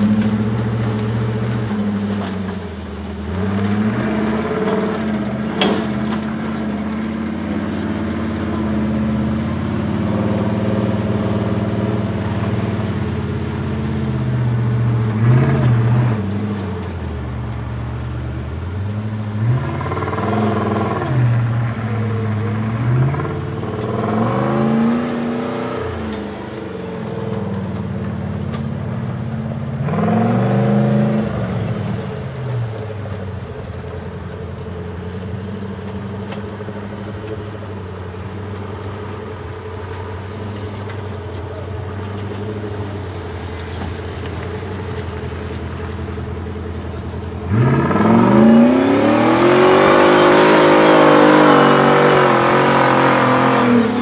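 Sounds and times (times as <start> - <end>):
truck engine revving: 0.0 - 54.0.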